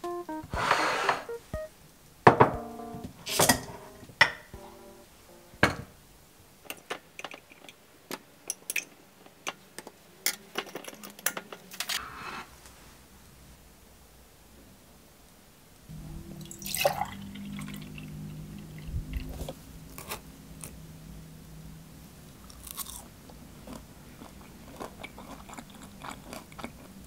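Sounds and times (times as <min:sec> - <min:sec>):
knocks and clanks of dishes: 0:02.3 - 0:02.6.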